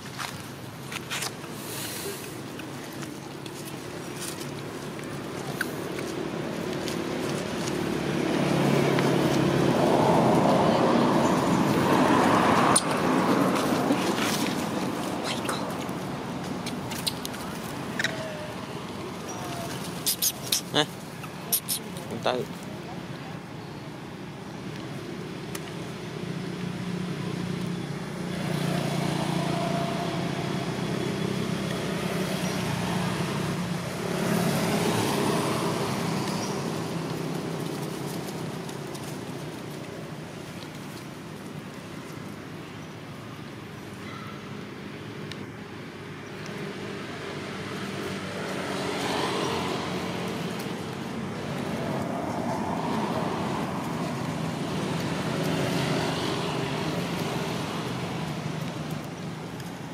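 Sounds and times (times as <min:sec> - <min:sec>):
vehicles passing: 0:00.0 - 0:59.9.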